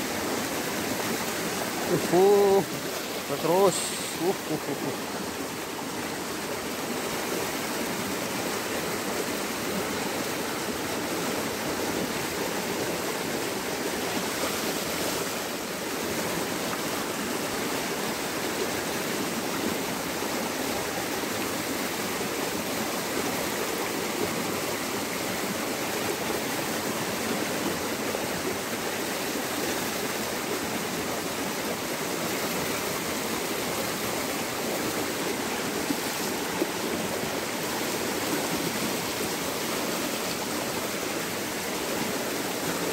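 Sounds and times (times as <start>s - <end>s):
stream rushing over rocks: 0.0s - 42.9s.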